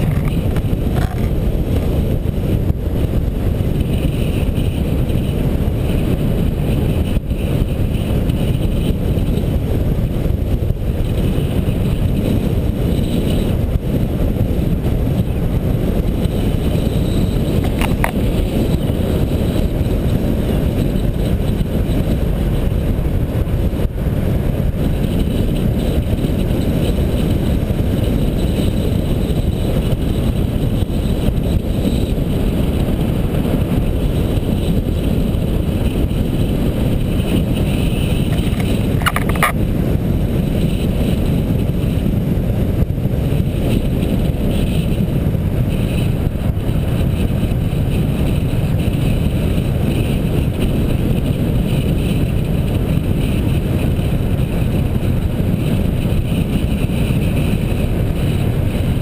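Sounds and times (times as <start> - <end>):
wind buffeting microphone: 0.0 - 59.0.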